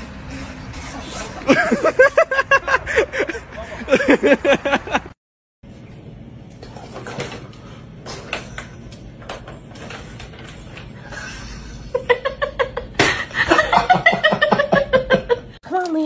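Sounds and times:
person laughing: 1.3 - 5.2.

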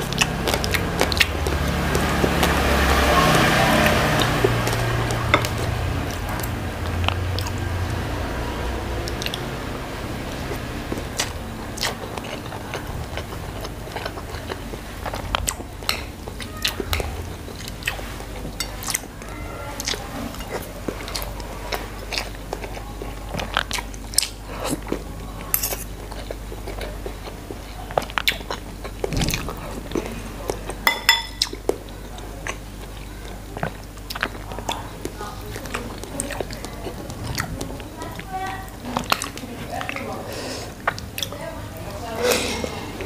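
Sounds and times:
person chewing and lip smacking: 0.0 - 42.8
low steady hum: 0.0 - 43.0
metal cutlery clinking on ceramic: 25.5 - 25.9, 30.9 - 31.5.

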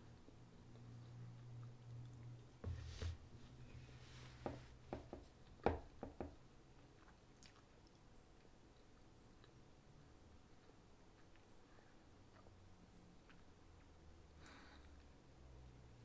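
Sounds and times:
person chewing with clicks: 0.0 - 2.6, 6.7 - 14.0.

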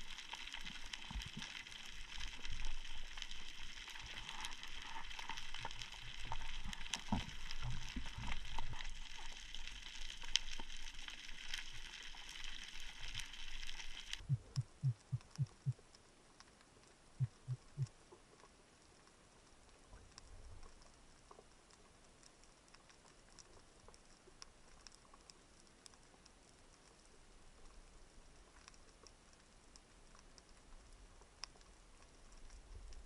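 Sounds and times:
underwater crackling hiss: 0.0 - 15.8
low thumps: 14.2 - 15.8.

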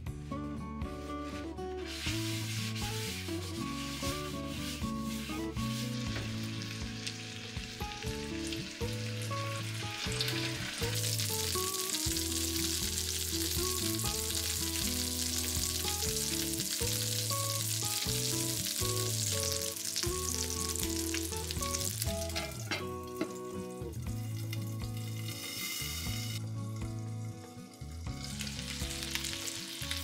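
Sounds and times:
light background music: 0.0 - 30.0
patties sizzling in oil: 1.8 - 30.0
glass lid on pan: 22.2 - 23.4.

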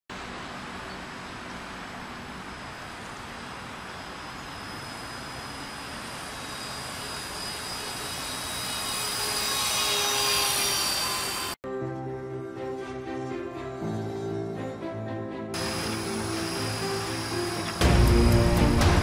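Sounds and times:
model aircraft motors whining: 2.2 - 11.6, 15.6 - 19.0.

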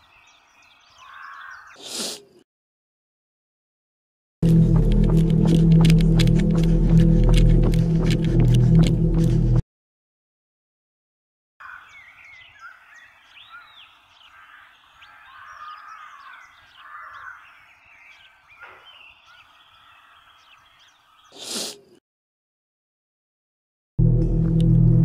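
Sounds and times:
small birds chirping: 0.0 - 2.4, 11.6 - 22.0.

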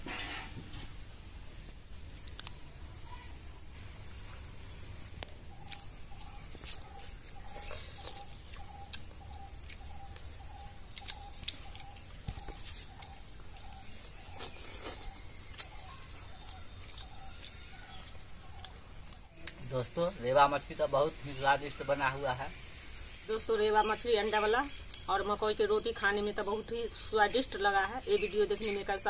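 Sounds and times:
insects buzzing: 0.0 - 29.0.

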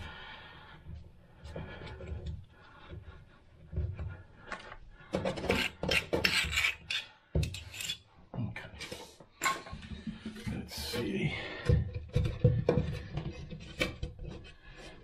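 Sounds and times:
hand rasp scraping: 5.2 - 8.0.

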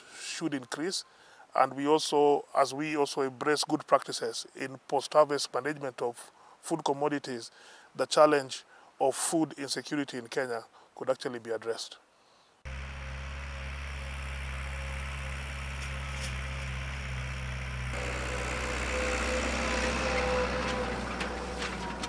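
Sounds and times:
tractor engine running: 12.7 - 22.0.

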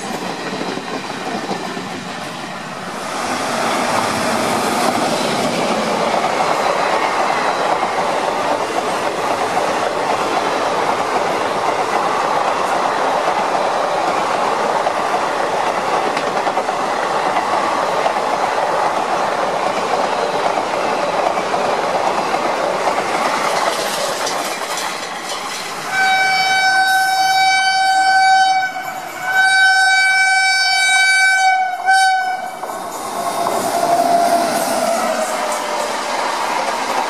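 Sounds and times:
train rumble and clatter: 0.0 - 37.0
train horn blasts: 25.9 - 32.6.

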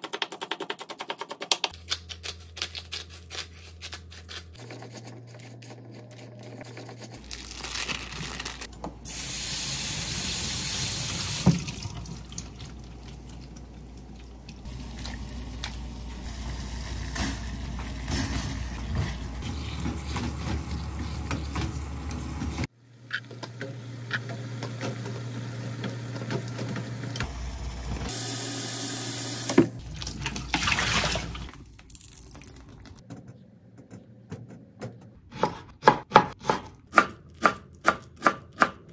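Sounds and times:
kitchen tap running: 9.1 - 22.6, 28.1 - 32.8.

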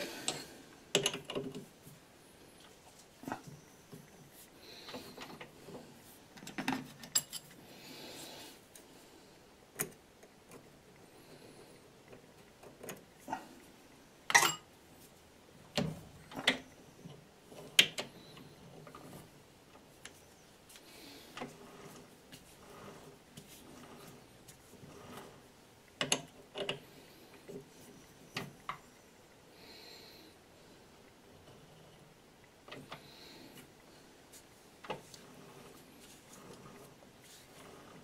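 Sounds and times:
metal clicks and knocks: 0.3 - 1.7.

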